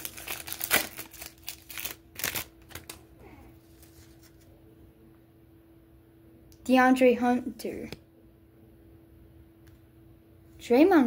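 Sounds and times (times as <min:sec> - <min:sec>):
cards rustling in hands: 0:00.0 - 0:04.5
faint steady hum: 0:00.0 - 0:11.0.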